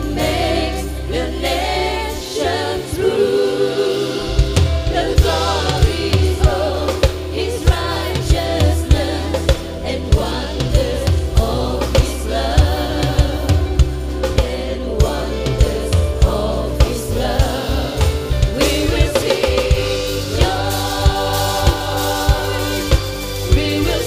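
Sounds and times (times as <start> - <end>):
bass: 0.0 - 24.0
drum kit steady beat: 0.0 - 24.0
electric guitar: 0.0 - 24.0
keyboard: 0.0 - 24.0
singers singing through microphones: 0.0 - 24.0.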